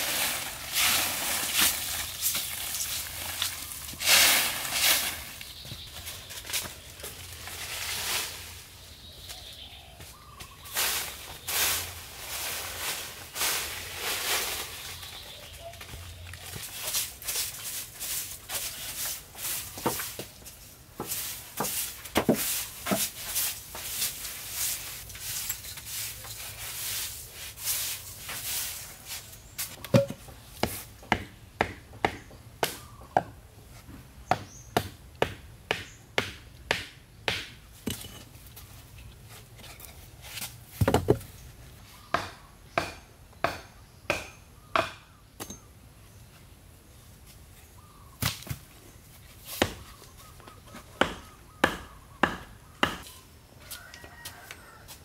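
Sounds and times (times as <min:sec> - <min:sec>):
wood being chopped by hand: 0:29.8 - 0:33.4, 0:34.3 - 0:38.1, 0:40.8 - 0:41.3, 0:42.1 - 0:45.6, 0:49.6 - 0:49.9, 0:51.0 - 0:53.1.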